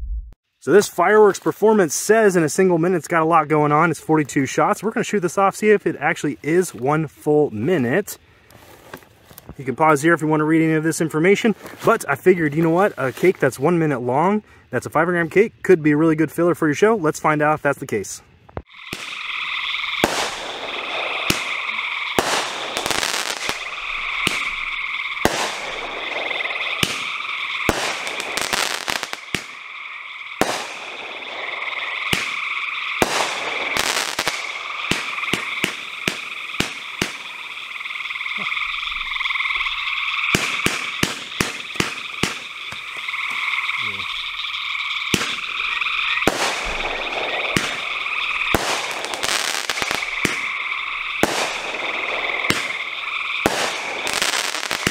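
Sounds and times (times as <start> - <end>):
fireworks launches and bursts: 18.6 - 54.9
high chirring animal chorus: 18.7 - 54.9.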